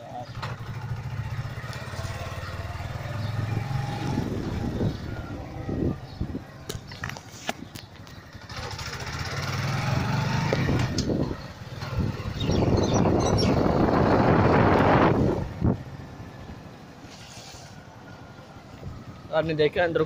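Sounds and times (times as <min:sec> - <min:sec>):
motorcycle engine running: 0:00.2 - 0:06.4, 0:08.1 - 0:16.2.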